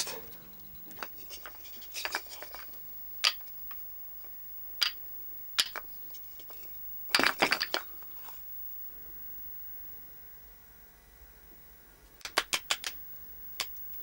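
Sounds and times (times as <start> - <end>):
small hard objects clicking: 5.6 - 5.9, 12.2 - 13.0.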